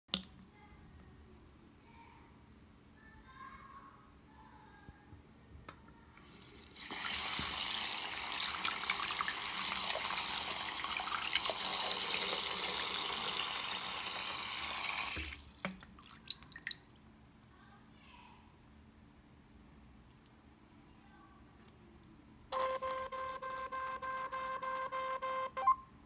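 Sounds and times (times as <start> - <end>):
tap water running into basin: 6.2 - 16.9
water drips: 6.3 - 12.5, 15.1 - 17.5.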